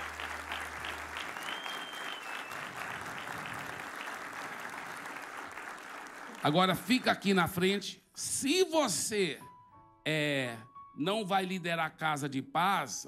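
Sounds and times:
congregation applauding: 0:00.0 - 0:07.6
high whistle: 0:01.2 - 0:02.8.

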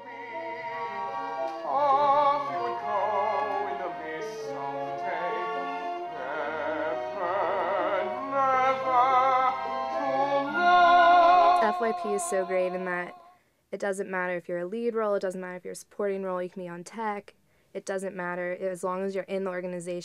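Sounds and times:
orchestra holding low notes: 0:00.0 - 0:12.9
man singing with vibrato: 0:00.0 - 0:13.4.

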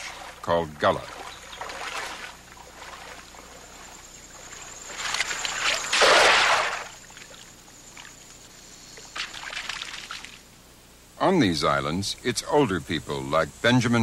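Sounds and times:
net splashing into water: 0:01.1 - 0:03.2, 0:04.9 - 0:07.4, 0:09.2 - 0:10.4
net swishing through water: 0:01.1 - 0:07.4.

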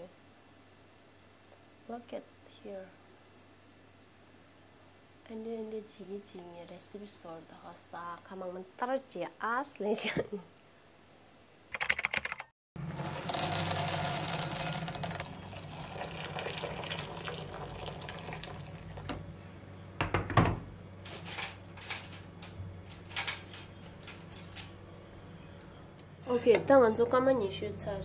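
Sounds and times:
water pouring: 0:14.9 - 0:19.1.

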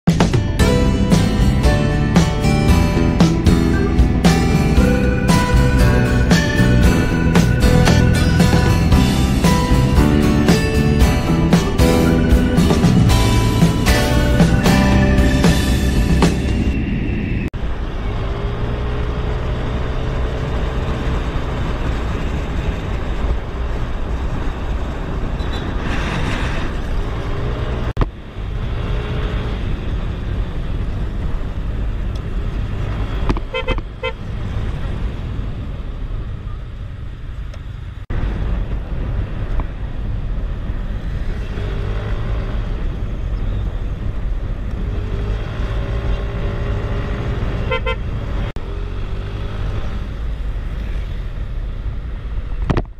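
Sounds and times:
traffic noise: 0:00.1 - 0:52.9
wind noise: 0:11.0 - 0:18.7, 0:21.2 - 0:37.2, 0:38.1 - 0:48.6
horn toots: 0:33.4 - 0:34.2, 0:47.6 - 0:48.2.

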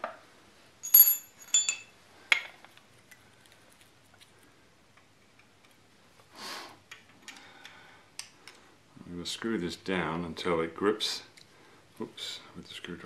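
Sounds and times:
metal tools clinking on engine: 0:00.8 - 0:01.9.

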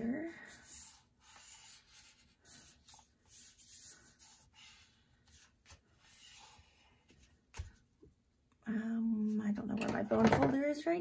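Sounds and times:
paper rustling and rubbing: 0:00.4 - 0:07.8.

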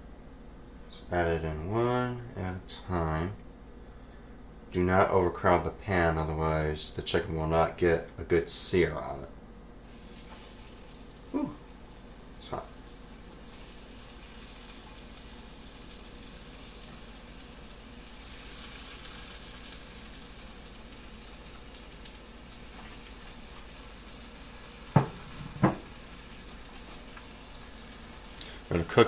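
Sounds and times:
chicken sizzling in hot oil: 0:09.8 - 0:29.0
sharp knocks: 0:25.0 - 0:25.8.

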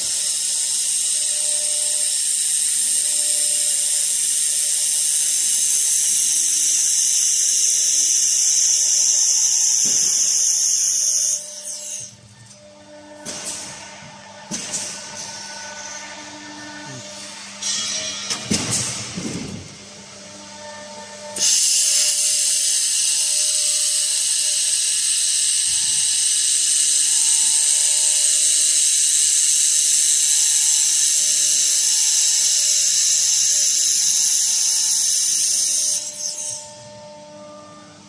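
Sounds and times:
laser welder high hiss: 0:00.0 - 0:12.2, 0:21.4 - 0:36.6
faint machine hum: 0:00.0 - 0:38.0.

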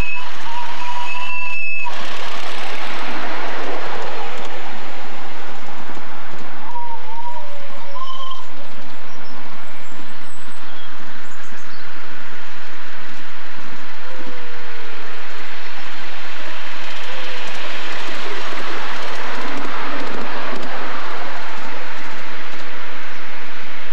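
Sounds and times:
miniature steam train rushing past: 0:00.0 - 0:09.0.

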